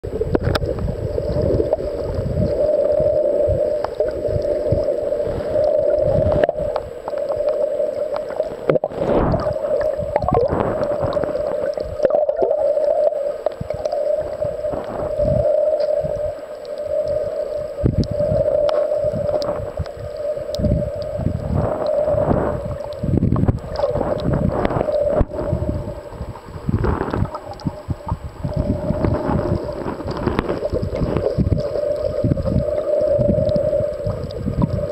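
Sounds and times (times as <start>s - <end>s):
muffled underwater swishing: 0.0s - 34.9s.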